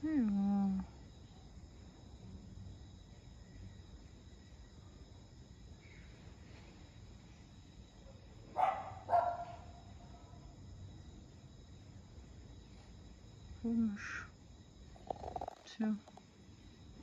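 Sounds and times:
insect chirring: 0.0s - 17.0s
small dog barking: 8.5s - 9.8s.

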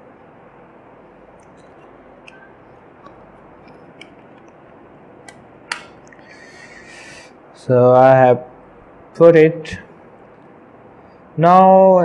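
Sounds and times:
steady hiss: 5.7s - 12.0s.

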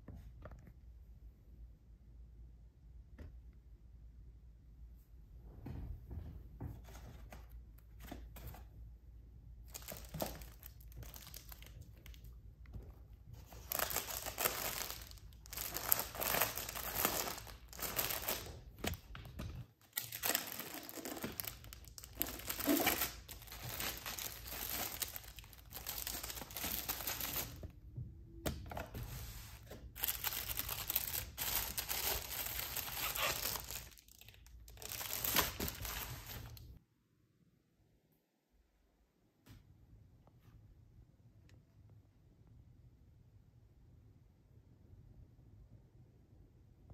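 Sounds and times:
plastic sleeves crinkling: 9.6s - 12.4s, 13.4s - 27.7s, 29.0s - 36.8s.

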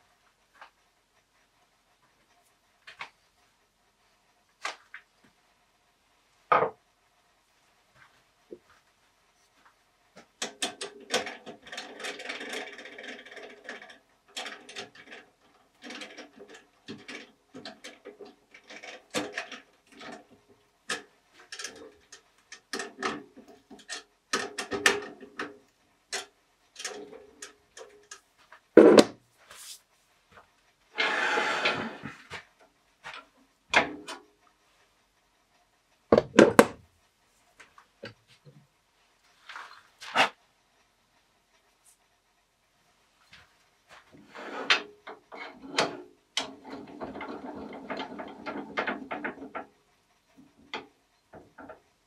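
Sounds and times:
metal chuck and wood clattering: 10.4s - 28.2s, 44.1s - 49.8s.

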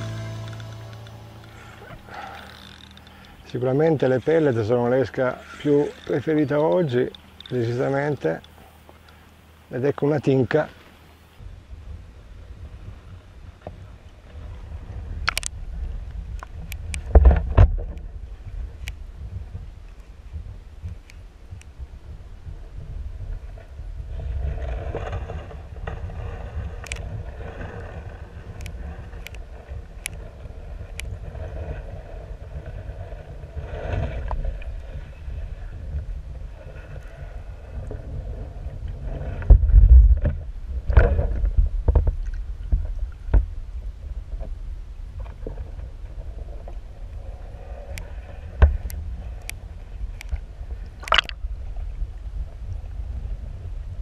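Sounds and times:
sharp clicks: 0.4s - 3.4s
underwater rumble and gurgling: 11.0s - 54.0s.

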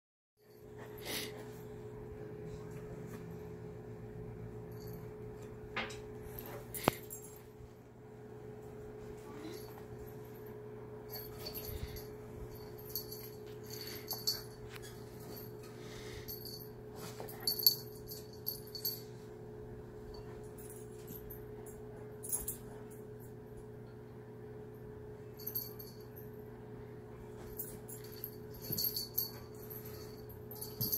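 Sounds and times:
steady low hum: 0.4s - 30.9s
pet collar jingling: 11.1s - 19.2s, 27.4s - 30.9s.

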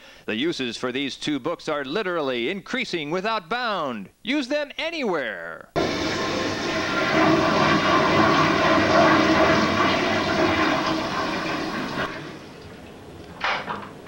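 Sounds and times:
toilet flushing: 5.8s - 14.0s.

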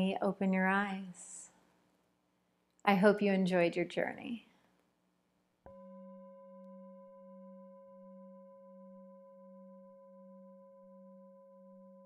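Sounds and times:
singing bowl ringing: 5.7s - 12.0s.

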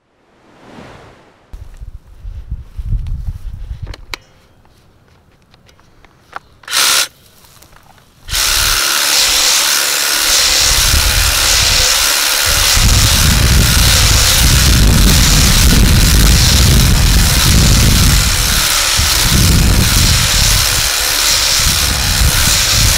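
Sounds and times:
hedge trimmer cutting: 6.6s - 7.1s, 8.3s - 22.9s.

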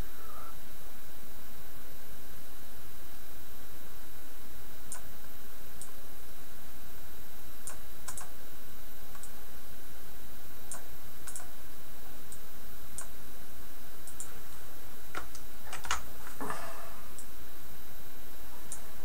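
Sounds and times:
low steady hum: 0.0s - 19.0s
mouse and keyboard clicks: 10.7s - 11.5s.

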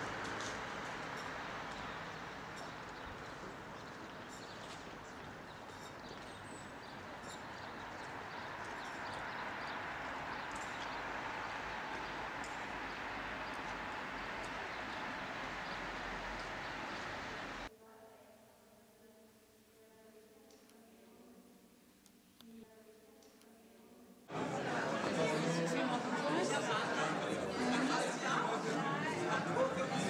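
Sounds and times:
distant traffic hum: 0.0s - 17.7s.

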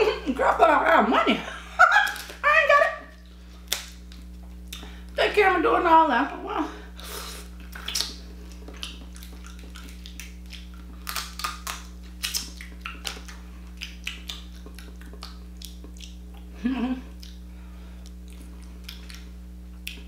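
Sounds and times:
crab shell cracking: 3.6s - 4.4s, 7.7s - 16.2s
chewing: 7.6s - 16.5s, 17.1s - 20.0s.

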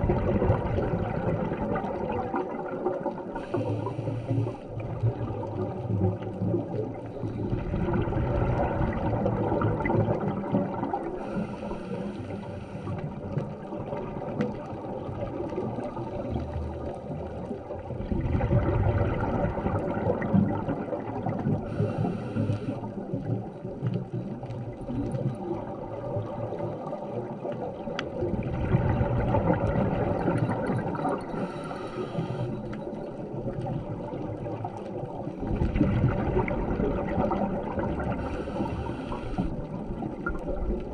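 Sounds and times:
exhaled air bubbling underwater: 0.0s - 40.9s
regulator hiss: 31.4s - 32.6s, 38.2s - 39.5s.

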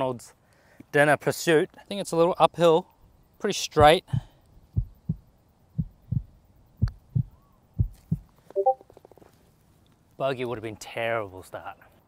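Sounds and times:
heartbeat thumping: 3.8s - 8.3s
brief tone: 8.5s - 8.8s.

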